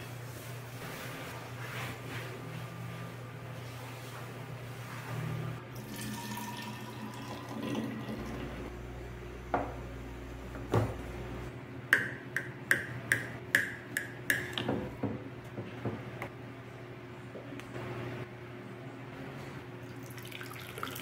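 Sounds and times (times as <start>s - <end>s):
coffee pouring into flask: 5.8s - 8.7s, 19.9s - 21.0s.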